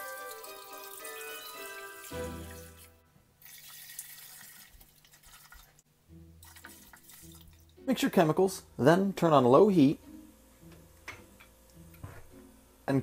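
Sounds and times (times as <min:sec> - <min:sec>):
light background music: 0:00.0 - 0:03.1, 0:06.0 - 0:13.0
liquid pouring into metal pot: 0:00.0 - 0:05.8, 0:06.4 - 0:07.8.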